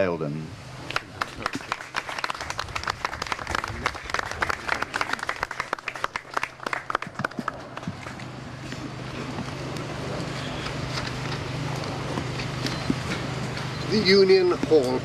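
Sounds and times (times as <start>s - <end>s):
crowd applauding: 0.9s - 8.0s.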